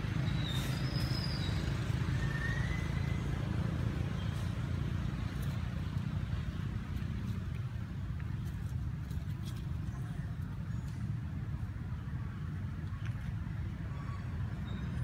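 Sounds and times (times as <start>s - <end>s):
whistled bird calls: 0.3s - 3.4s.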